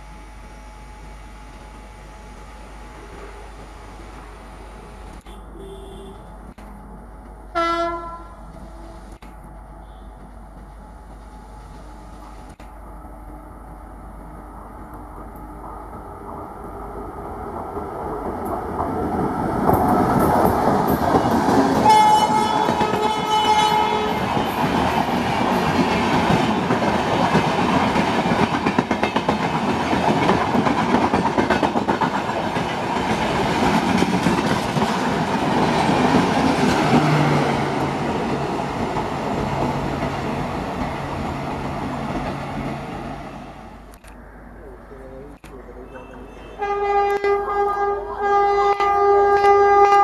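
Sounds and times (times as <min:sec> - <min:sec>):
locomotive horn: 0:05.2 - 0:06.4, 0:07.5 - 0:09.1, 0:09.8 - 0:10.2, 0:21.8 - 0:24.6, 0:45.8 - 0:50.0
train wheels clattering over rail joints: 0:24.4 - 0:37.3.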